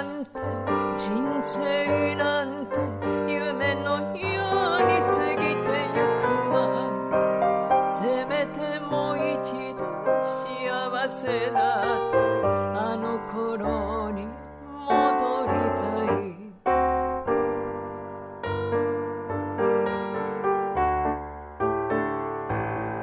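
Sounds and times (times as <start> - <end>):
person singing with vibrato: 0.0 - 17.0
piano accompaniment: 0.0 - 23.0.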